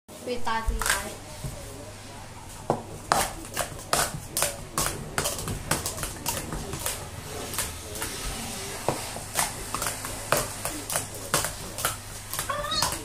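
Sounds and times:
plastic cups clacking: 3.1s - 8.1s.

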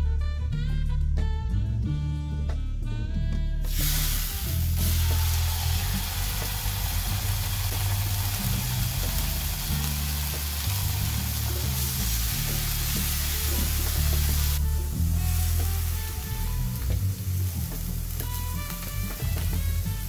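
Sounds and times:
background music with bass line: 0.0s - 20.0s
chicken sizzling in frying pan: 3.7s - 20.0s.

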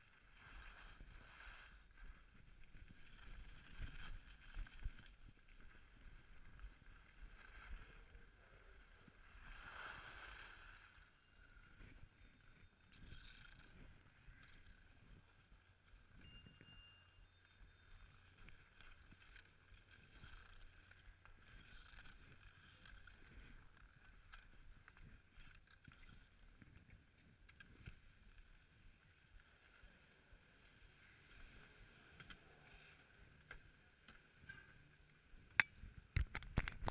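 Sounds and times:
faint clicks and ticks: 10.9s - 36.9s.

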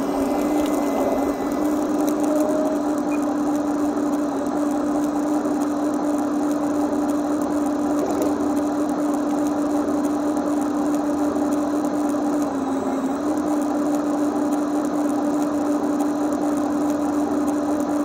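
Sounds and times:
small electric motor whine: 0.0s - 5.5s.

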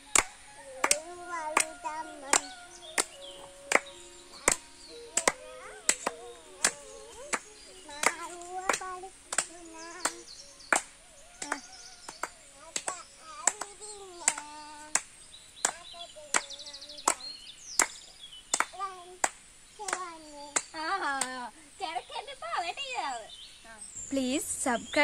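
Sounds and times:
people singing: 0.0s - 17.4s
rhythmic hand clapping: 0.0s - 21.4s.

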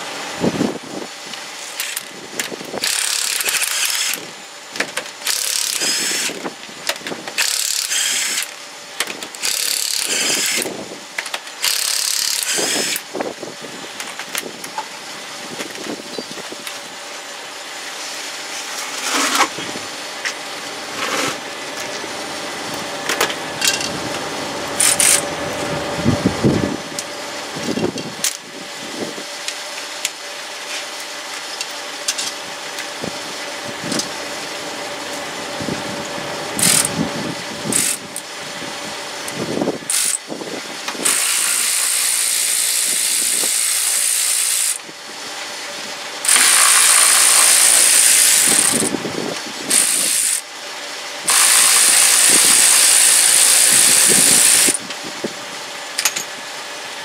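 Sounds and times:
power tool loosening fasteners: 1.7s - 13.1s, 24.8s - 25.2s, 36.6s - 36.9s, 37.7s - 38.2s, 39.9s - 40.3s, 40.9s - 44.8s, 46.2s - 49.0s, 49.7s - 50.4s, 51.3s - 54.9s
tools clicking and clanking: 1.7s - 13.1s, 23.0s - 24.0s, 24.8s - 25.2s, 31.6s - 32.9s, 56.0s - 56.3s.

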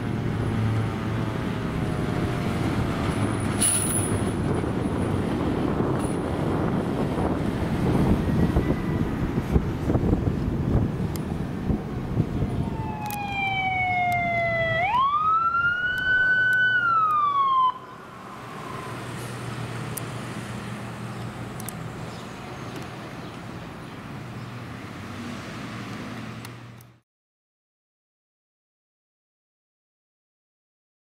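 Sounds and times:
truck engine and road rumble: 0.0s - 27.0s
fire engine siren wailing: 11.9s - 20.0s.

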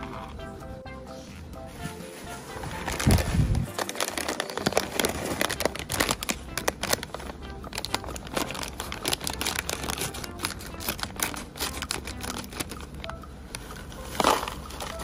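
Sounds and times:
plastic bag crinkling: 2.7s - 13.0s, 14.0s - 15.0s
scissors snipping plastic bag: 2.9s - 12.8s, 14.2s - 15.0s
chips rattling into plastic bowl: 3.7s - 7.2s.

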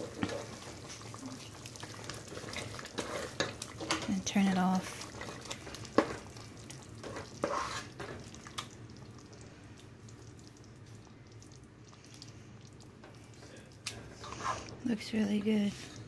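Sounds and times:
spoon stirring thick soup: 0.0s - 16.0s
spoon scraping and knocking pot: 7.0s - 8.1s.

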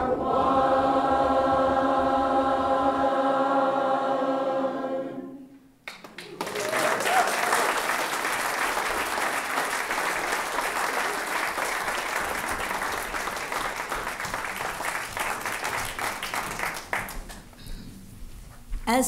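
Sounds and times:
congregation applauding: 5.8s - 17.6s.

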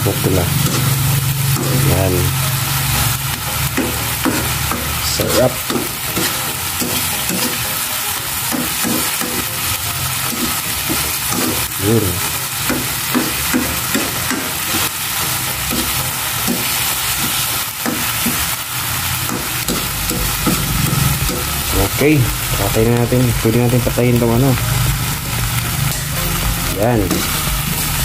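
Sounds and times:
paste sizzling in a wok: 0.0s - 28.0s
metal fork scraping a pan: 0.6s - 1.8s, 3.8s - 7.8s.

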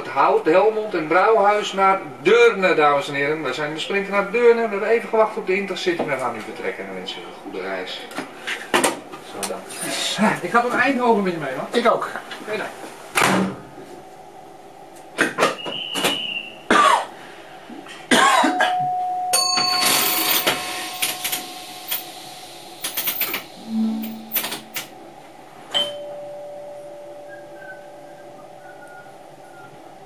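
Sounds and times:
electronic beeps and tones: 23.6s - 24.9s.

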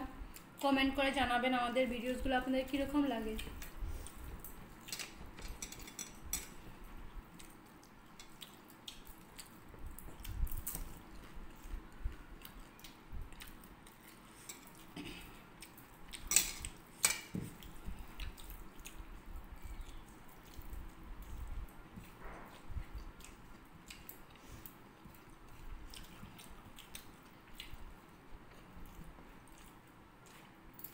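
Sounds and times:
mouths chewing: 17.6s - 30.6s.

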